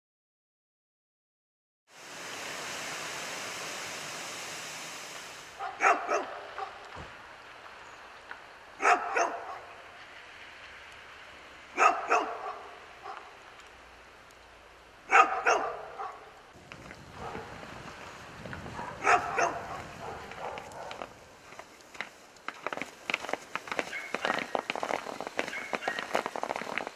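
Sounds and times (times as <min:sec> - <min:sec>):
steady hiss: 0:01.9 - 0:05.8, 0:19.6 - 0:26.9
dog barking: 0:05.6 - 0:06.9, 0:08.8 - 0:09.8, 0:11.8 - 0:13.3, 0:15.1 - 0:16.3, 0:17.2 - 0:17.5, 0:18.8 - 0:21.1, 0:23.8 - 0:24.4, 0:25.4 - 0:26.0.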